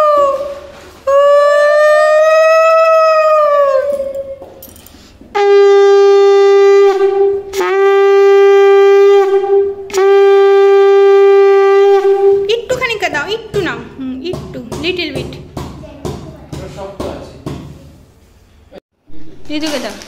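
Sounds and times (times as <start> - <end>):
conch shell blowing: 0.0 - 4.6, 5.2 - 12.5.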